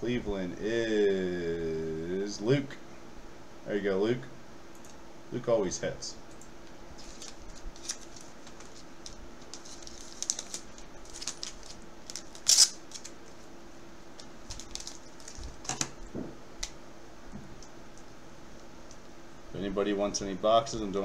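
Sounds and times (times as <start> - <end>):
plastic sleeves rustling: 6.9 - 16.8.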